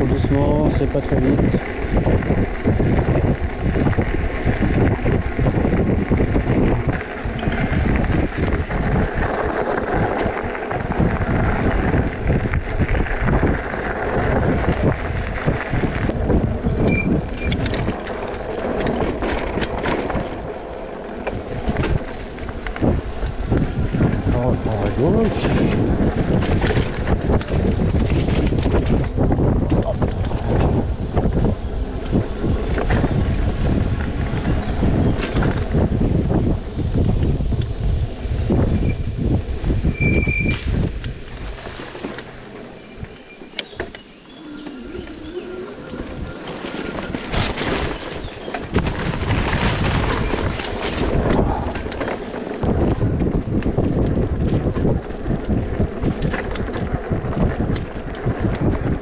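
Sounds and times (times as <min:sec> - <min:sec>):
wind buffeting microphone: 0:00.0 - 0:59.0
low rumble: 0:44.2 - 0:58.6.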